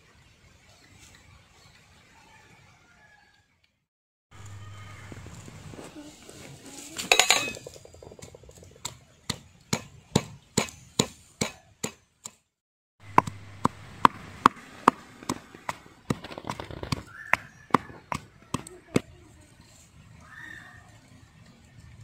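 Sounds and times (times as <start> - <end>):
pestle pounding in stone mortar: 13.0 - 19.0.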